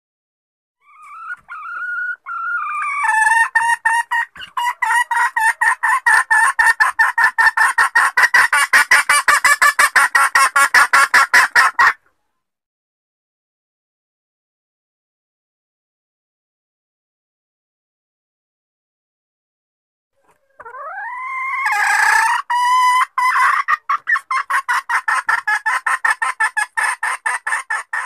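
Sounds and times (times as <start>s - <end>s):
junglefowl hen calling: 0.8s - 12.2s, 20.2s - 28.0s.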